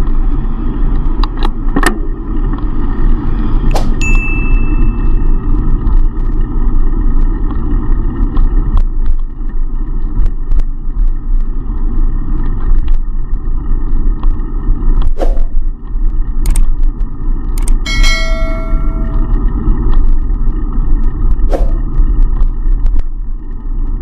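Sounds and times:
wind and road noise: 0:00.0 - 0:24.0
sharp ticks and knocks: 0:17.5 - 0:19.4.

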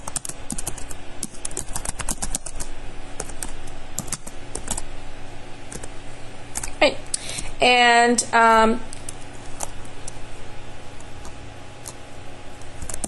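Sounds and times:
keyboard typing clicks: 0:00.0 - 0:04.8, 0:12.8 - 0:13.0.

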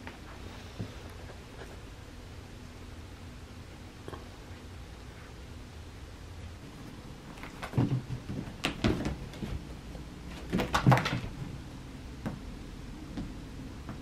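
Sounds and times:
cats thudding and scuffling: 0:07.3 - 0:12.4.

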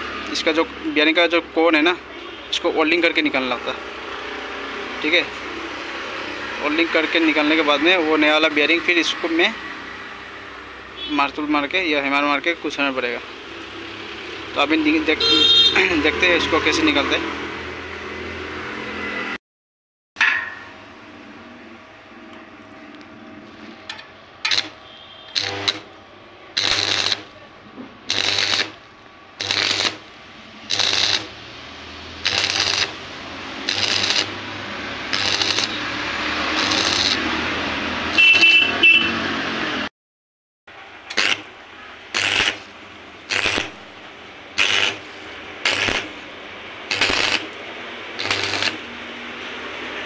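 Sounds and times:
arc welder crackling: 0:22.6 - 0:38.6, 0:40.8 - 0:49.6.

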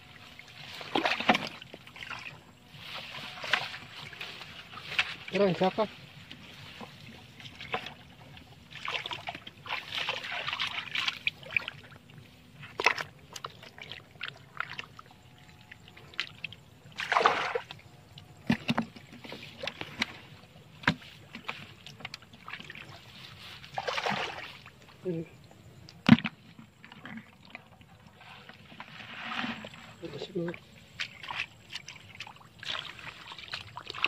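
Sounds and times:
hands splashing in muddy water: 0:08.7 - 0:11.9, 0:17.0 - 0:17.8, 0:20.8 - 0:24.7, 0:30.9 - 0:34.0.

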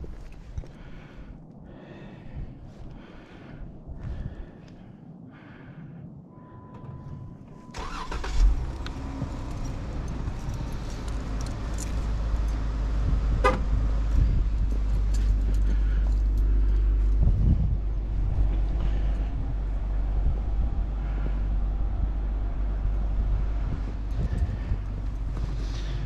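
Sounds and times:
car engine starting and running: 0:06.5 - 0:26.0.

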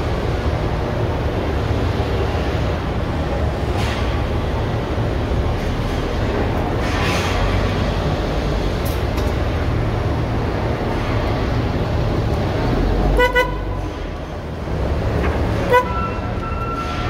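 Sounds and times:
rail vehicle rumbling: 0:00.0 - 0:17.0
train horn toots: 0:13.2 - 0:13.8, 0:15.6 - 0:16.6.

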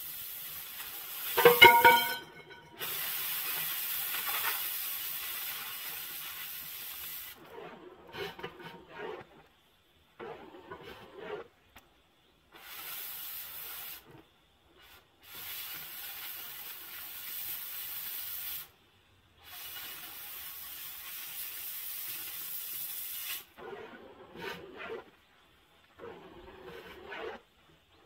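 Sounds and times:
cutting torch hissing: 0:00.0 - 0:01.4, 0:02.8 - 0:07.9, 0:12.5 - 0:14.1, 0:14.7 - 0:18.8, 0:19.4 - 0:23.6
pipe scraping and knocking: 0:01.4 - 0:02.8, 0:07.4 - 0:09.4.

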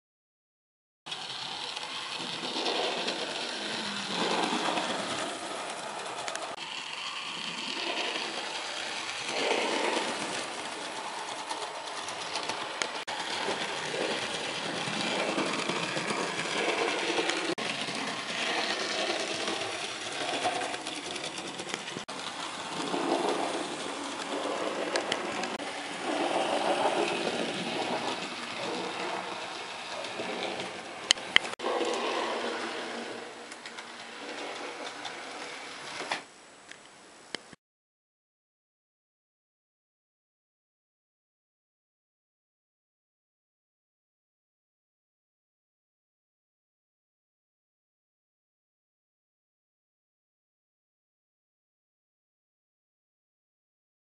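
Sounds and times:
model train motor whirring: 0:01.1 - 0:36.8
wheel and rail noise: 0:01.1 - 0:37.6.

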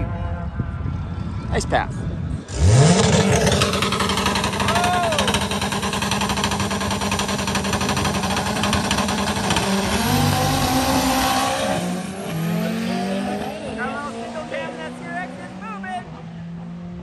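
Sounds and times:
drag-race car engine running: 0:02.5 - 0:12.7.

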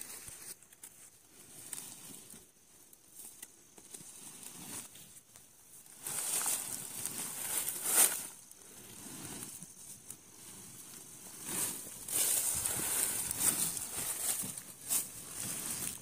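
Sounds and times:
dry corn leaves rustling: 0:00.0 - 0:16.0
sack dragged over leaves: 0:04.1 - 0:05.1, 0:05.8 - 0:16.0.

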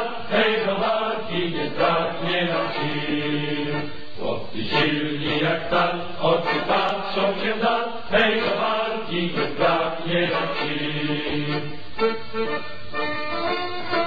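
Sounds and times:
voices chanting music: 0:00.0 - 0:12.6.

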